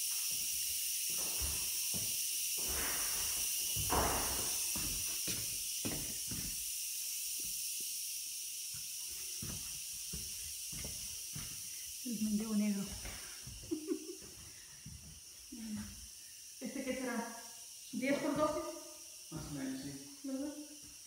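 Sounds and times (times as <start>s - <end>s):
footsteps on tiled floor: 0.0s - 6.7s, 8.6s - 16.1s
steady high hiss: 0.0s - 21.0s.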